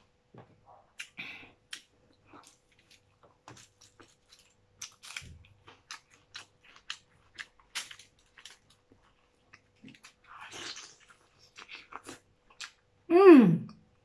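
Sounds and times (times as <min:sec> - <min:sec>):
chewing with full mouth: 0:01.0 - 0:12.8
crab shell cracking: 0:02.4 - 0:08.8.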